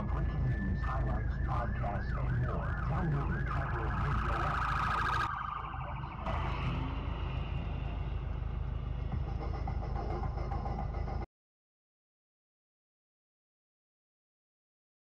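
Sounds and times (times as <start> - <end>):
police siren yelping: 0.0 - 7.0
low traffic rumble: 0.0 - 11.2.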